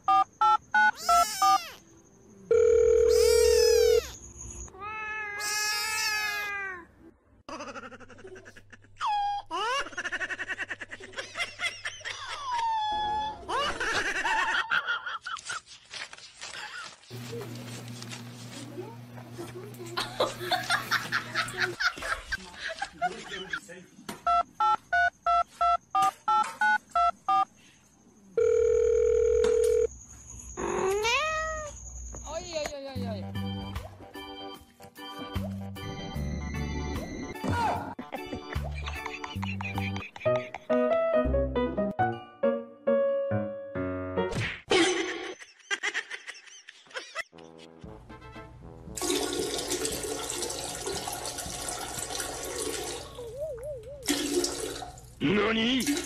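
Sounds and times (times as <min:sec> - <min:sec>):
steady phone tone: 0:02.5 - 0:04.0, 0:28.4 - 0:29.9
telephone keypad beeps: 0:24.3 - 0:27.5
music: 0:32.9 - 0:44.4, 0:47.4 - 0:49.5
toilet flushing: 0:49.0 - 0:53.2, 0:54.0 - 0:55.2, 0:55.8 - 0:56.0
rising wavering vocal call: 0:53.2 - 0:54.1.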